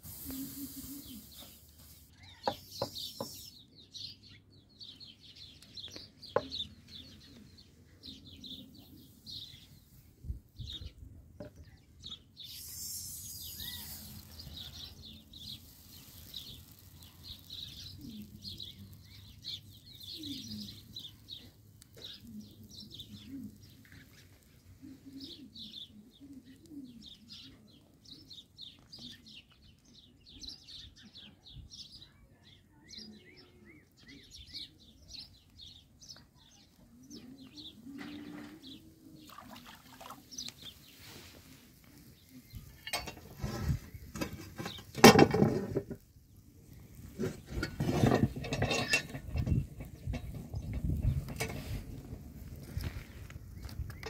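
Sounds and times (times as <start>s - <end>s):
brief hiss: 0.0s - 3.6s, 12.4s - 14.5s
small birds chirping: 0.0s - 54.0s.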